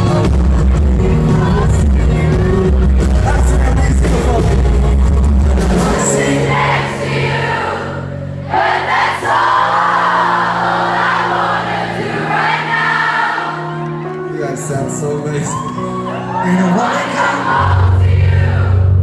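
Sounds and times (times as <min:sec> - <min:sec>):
person singing: 0:00.0 - 0:07.3
crowd singing along: 0:00.0 - 0:14.1, 0:16.5 - 0:19.0
live pop song through pa: 0:00.0 - 0:19.0.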